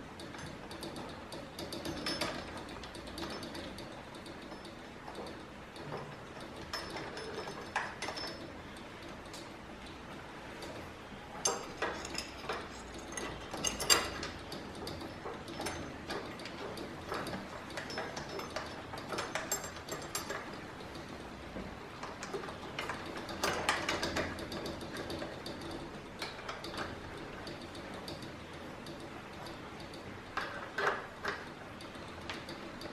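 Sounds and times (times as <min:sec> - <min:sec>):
allen key clicking and scraping: 0:11.4 - 0:21.3.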